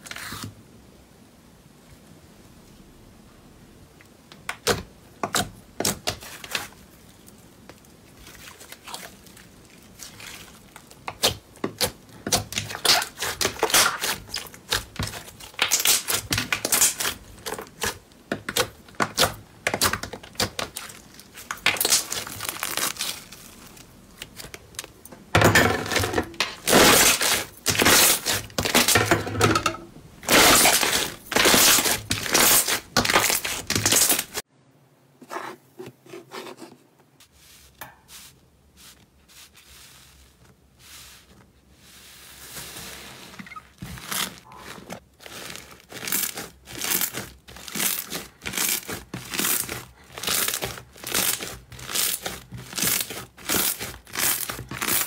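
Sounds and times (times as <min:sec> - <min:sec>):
slime popping and crackling: 0:08.8 - 0:25.0, 0:26.6 - 0:29.0, 0:30.2 - 0:34.4, 0:44.0 - 0:55.0.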